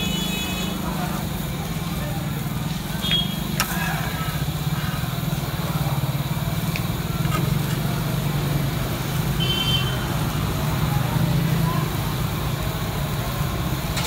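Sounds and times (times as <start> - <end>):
low engine rumble: 0.0 - 14.0
metal spatula scraping griddle: 3.6 - 4.3.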